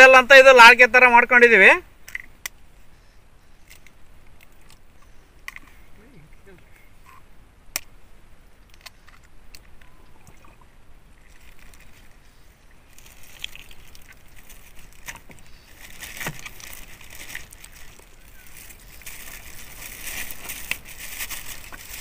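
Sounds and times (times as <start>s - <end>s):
plastic bag crinkling: 12.9s - 22.0s.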